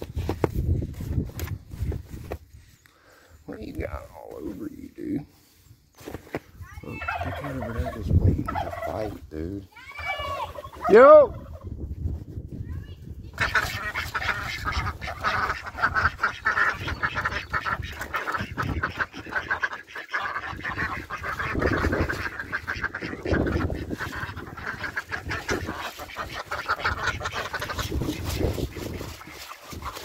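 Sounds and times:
ducks quacking: 6.8 - 9.2, 13.3 - 30.0.

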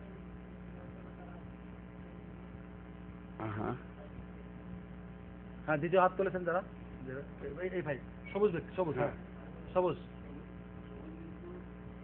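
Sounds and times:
electrical mains hum: 0.0 - 12.0
faint man's voice: 3.4 - 4.3.

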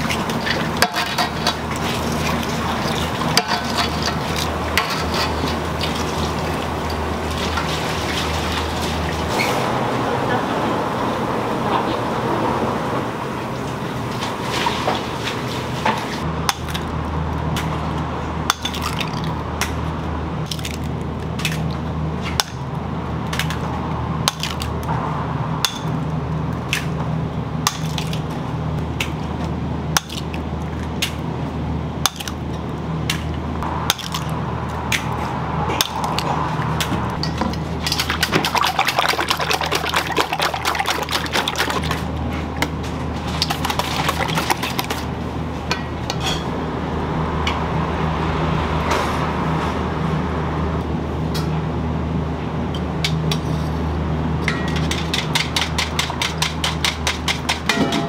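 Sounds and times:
water splashing: 0.0 - 9.4, 37.8 - 42.1, 43.2 - 45.0
low hum of kitchen equipment: 0.0 - 58.0.

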